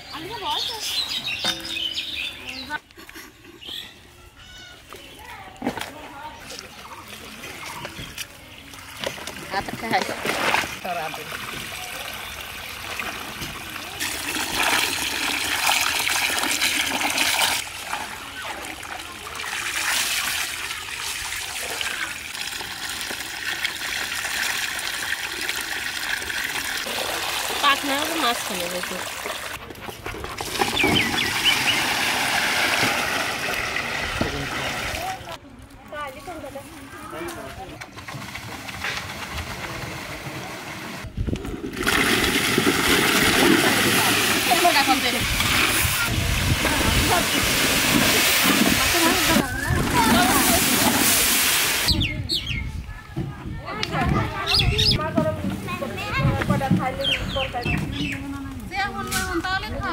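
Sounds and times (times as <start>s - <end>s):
water from hose splashing: 5.6s - 35.4s, 37.9s - 52.1s
water trickling: 10.7s - 29.6s
rushing splash into water: 30.4s - 35.2s, 41.6s - 52.0s.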